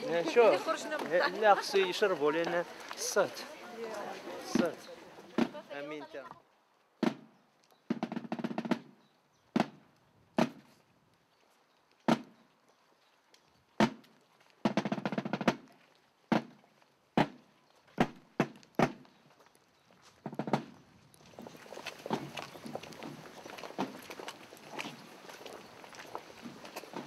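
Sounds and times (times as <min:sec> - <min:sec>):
marching drum beats and rolls: 0:04.4 - 0:05.8, 0:07.0 - 0:07.3, 0:07.9 - 0:09.0, 0:09.6 - 0:09.8, 0:10.4 - 0:10.6, 0:14.6 - 0:16.6, 0:20.2 - 0:20.7.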